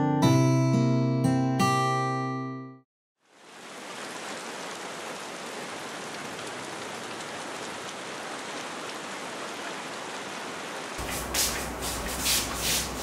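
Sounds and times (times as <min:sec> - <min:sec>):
steady rainfall: 0:03.2 - 0:13.0.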